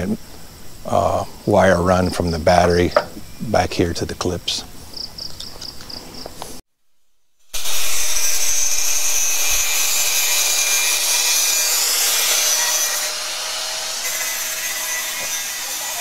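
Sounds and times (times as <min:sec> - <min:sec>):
faint insect chirping: 0:00.0 - 0:07.5
power tool grinding metal: 0:07.5 - 0:16.0.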